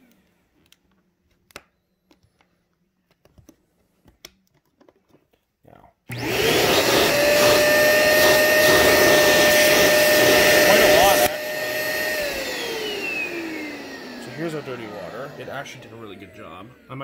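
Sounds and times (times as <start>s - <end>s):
carpet cleaner suction motor whine: 6.1s - 17.0s.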